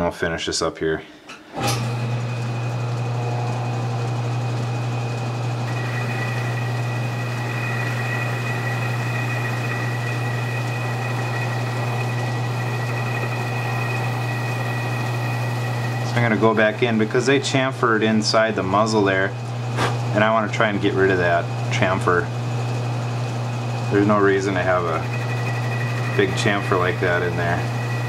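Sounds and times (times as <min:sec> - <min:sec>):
metal lathe humming: 0:01.7 - 0:28.0
thin high whine: 0:05.7 - 0:17.4, 0:23.9 - 0:28.0.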